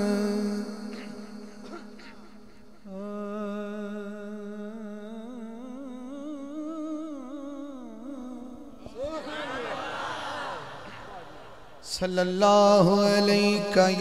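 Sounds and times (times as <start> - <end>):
man singing into microphone: 0.0 - 8.9, 11.8 - 14.0.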